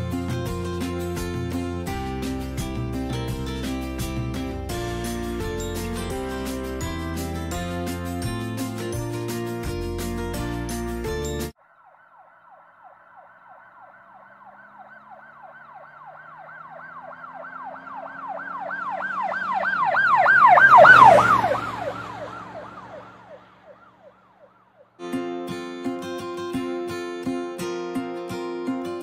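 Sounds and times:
music: 0.0s - 11.6s, 25.0s - 29.0s
siren yelping: 11.6s - 25.0s.

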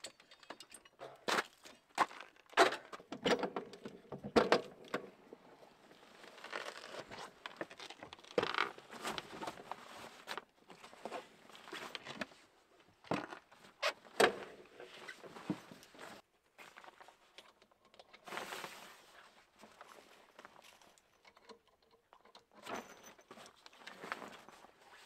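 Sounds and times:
rustle of tent fabric: 18.3s - 20.4s.

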